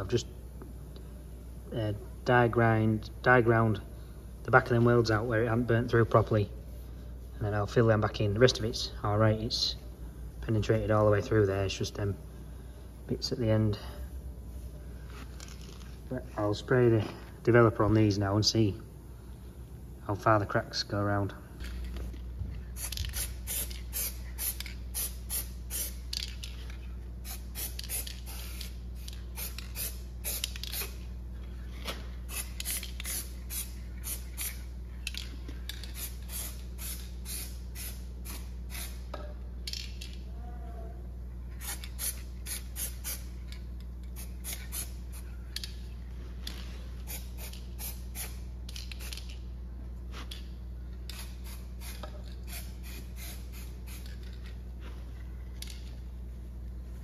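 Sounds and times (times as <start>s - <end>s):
steady low hum: 0.0s - 57.0s
aerosol can spraying: 22.8s - 26.1s, 27.2s - 31.0s, 32.2s - 34.7s, 35.9s - 39.0s, 47.0s - 49.2s, 51.1s - 54.2s.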